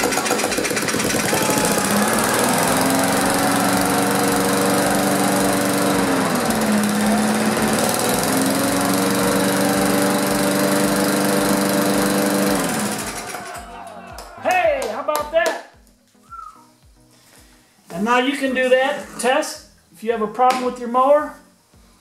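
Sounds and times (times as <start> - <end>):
lawn mower engine running: 0.0 - 13.6.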